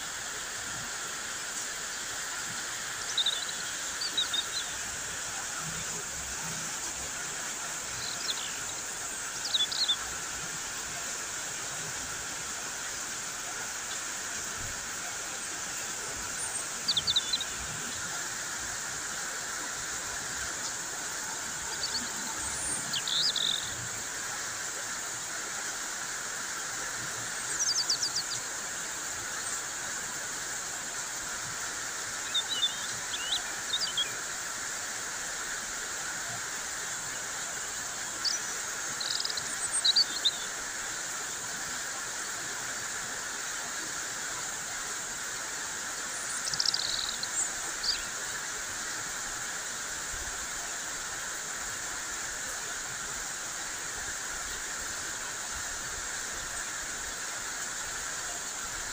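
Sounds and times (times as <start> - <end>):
birds chirping: 2.9 - 4.8, 20.5 - 23.8, 32.2 - 34.1, 38.2 - 40.5, 46.2 - 48.1.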